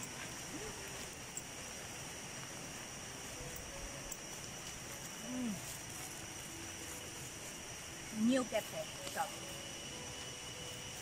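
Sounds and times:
insects droning: 0.0s - 11.0s
outdoor air noise: 0.0s - 11.0s
person humming: 5.1s - 5.9s.

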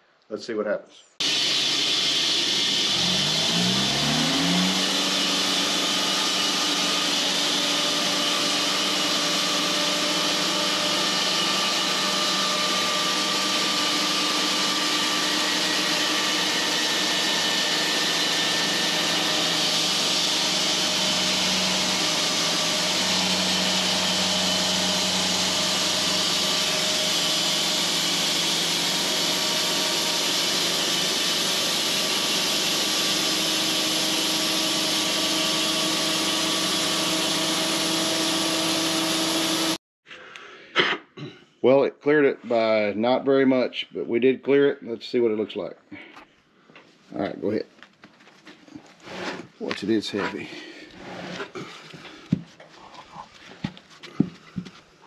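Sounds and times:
band sawmill cutting log: 1.2s - 39.8s, 49.0s - 51.7s.

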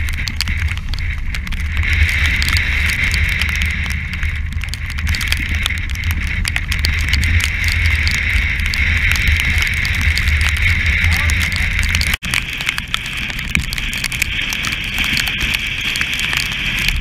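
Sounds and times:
rushing water: 0.0s - 17.0s
sea spray ticking on camera: 0.0s - 17.0s
wind buffeting microphone: 0.0s - 17.0s.

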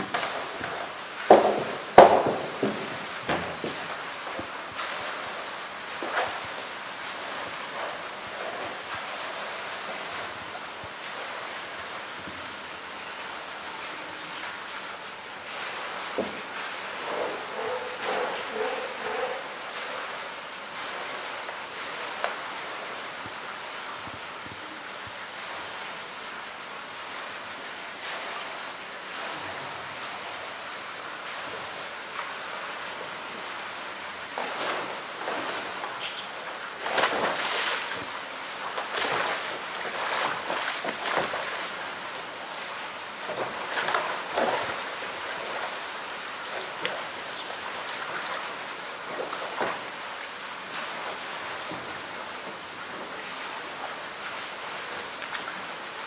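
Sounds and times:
cicadas droning: 0.0s - 56.0s
water sloshing: 34.4s - 42.4s.

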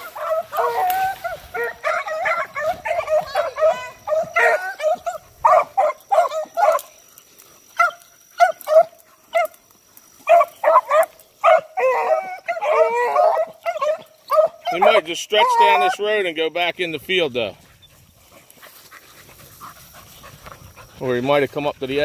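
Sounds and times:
beagles yelping: 0.0s - 7.0s, 7.7s - 16.2s.

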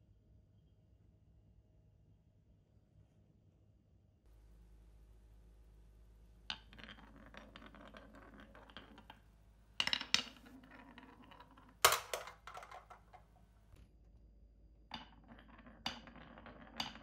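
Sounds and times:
marble rolling in wooden track: 6.4s - 13.8s, 14.9s - 17.0s
marble clacking on wooden pieces: 6.5s - 13.5s, 14.9s - 17.0s.

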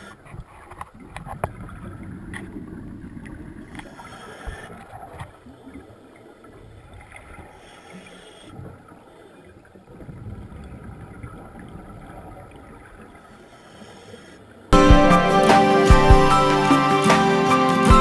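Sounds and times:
muffled underwater wash: 0.0s - 14.8s
music: 14.8s - 18.0s.

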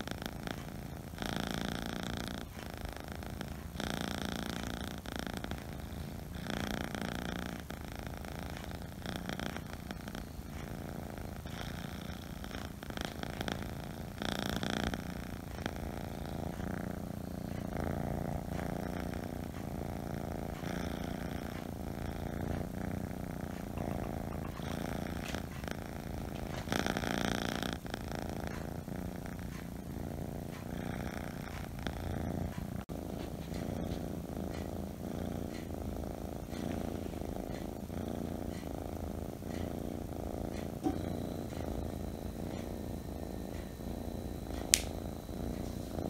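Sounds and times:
kitten purring: 0.0s - 46.0s.

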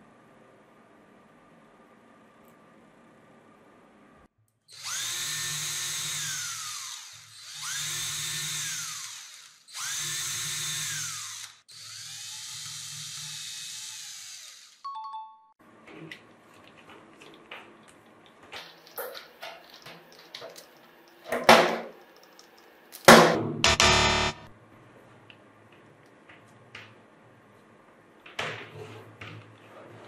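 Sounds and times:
electric drill drilling into wood: 4.7s - 14.8s.

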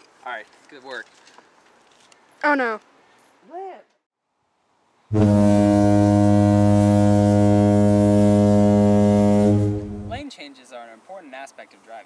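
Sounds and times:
low horn-like drone: 5.1s - 10.2s.

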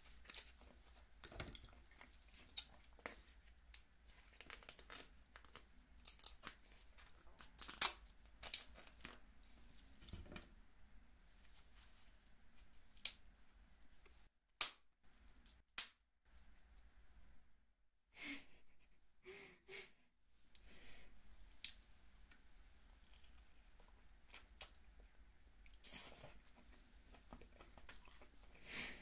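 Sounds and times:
crab shells cracking: 3.7s - 9.2s.

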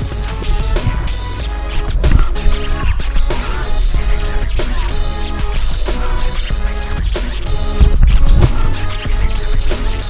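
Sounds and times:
heavy bass: 0.0s - 10.0s
sustained synth chords: 0.1s - 10.0s.

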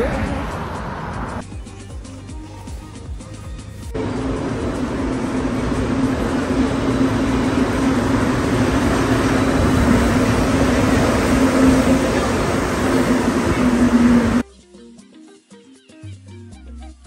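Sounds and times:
train rumbling into station: 4.0s - 14.4s.

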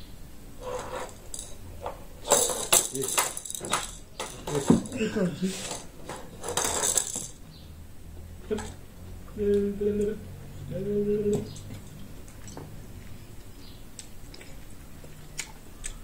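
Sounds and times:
chewing and smacking: 11.5s - 16.0s.

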